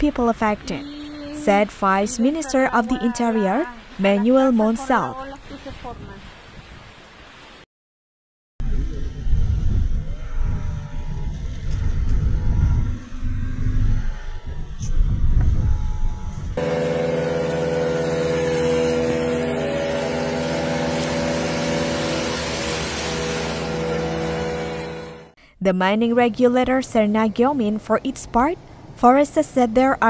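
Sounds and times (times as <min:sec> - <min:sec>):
hiss of floodwater and rain: 0:00.1 - 0:07.7, 0:18.9 - 0:24.8
low rumble: 0:08.6 - 0:25.4
car engine running: 0:08.8 - 0:25.3.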